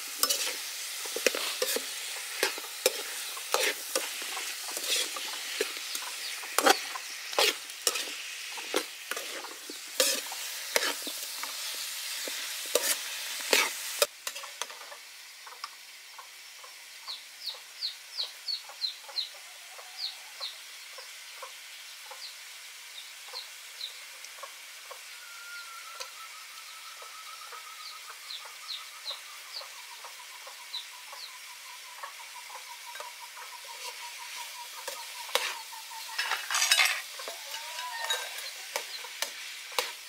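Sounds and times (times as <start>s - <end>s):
metal spatula scraping a pan: 0.0s - 14.8s, 32.9s - 40.0s
food sizzling in a wok: 0.0s - 40.0s.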